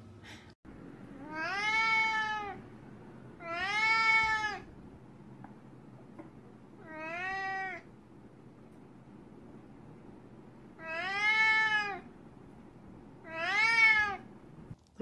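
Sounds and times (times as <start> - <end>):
cat meowing: 1.1 - 2.6, 3.4 - 4.7, 6.8 - 7.9, 10.8 - 12.1, 13.2 - 14.3.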